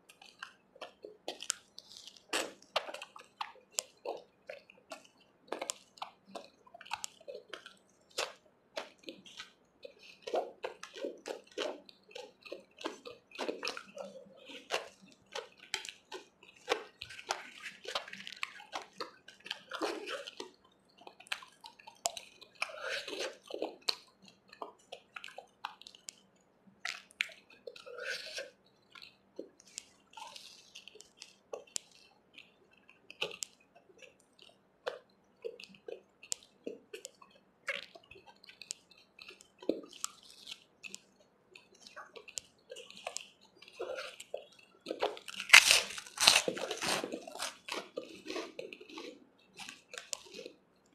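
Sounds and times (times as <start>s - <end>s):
chewing and mouth smacks: 0.0s - 50.9s.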